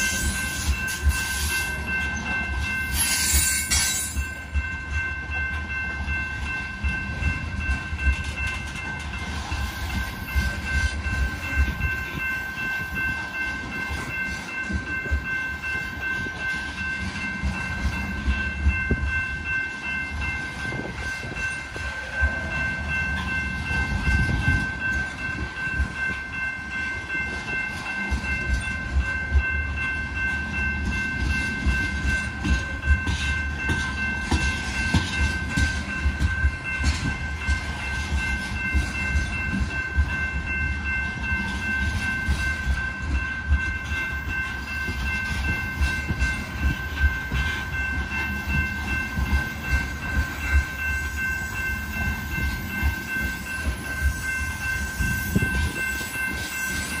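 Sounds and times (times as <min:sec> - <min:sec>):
train cars clicking and clunking: 0:00.0 - 0:57.0
train wheels rumbling: 0:00.0 - 0:57.0.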